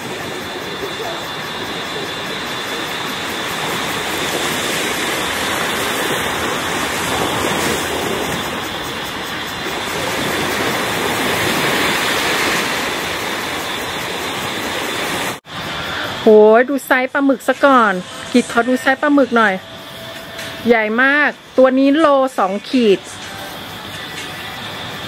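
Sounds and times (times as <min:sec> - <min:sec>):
waves washing onto beach: 0:00.0 - 0:16.4.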